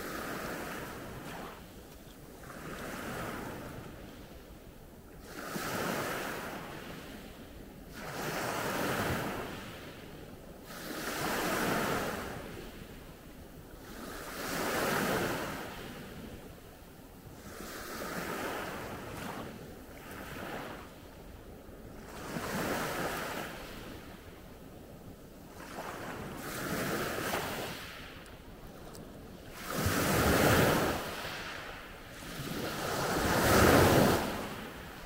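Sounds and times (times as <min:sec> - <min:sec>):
waves washing on pebble beach: 0:29.5 - 0:35.0.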